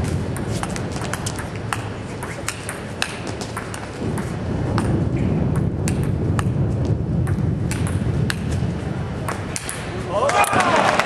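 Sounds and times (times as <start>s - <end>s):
low background noise: 0.0s - 11.0s
table tennis ball pinging on bat and table: 0.3s - 8.6s, 9.2s - 10.6s.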